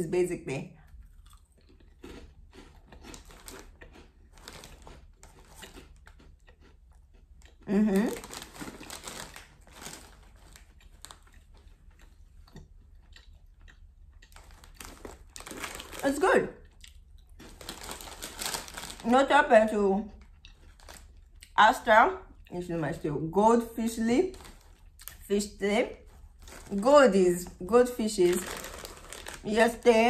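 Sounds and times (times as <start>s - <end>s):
crackers being chewed: 0.8s - 19.1s, 20.1s - 21.6s, 24.3s - 25.3s, 25.9s - 26.8s, 28.3s - 30.0s
foil bag crinkling: 3.1s - 6.1s, 7.8s - 11.7s, 14.4s - 16.3s, 17.4s - 19.3s, 20.6s - 21.2s, 24.2s - 25.2s, 25.9s - 27.2s, 27.8s - 30.0s.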